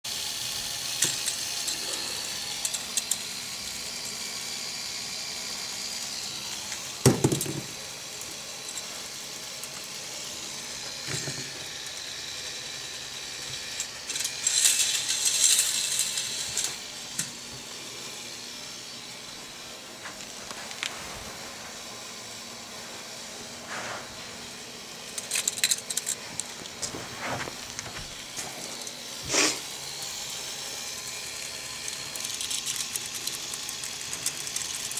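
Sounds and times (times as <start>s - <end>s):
plastic train rattling on track: 0.1s - 3.7s, 5.9s - 17.3s, 25.1s - 26.8s, 30.2s - 34.9s
chain lift clicking: 1.0s - 3.3s, 25.1s - 26.6s
steady hiss: 28.3s - 33.3s.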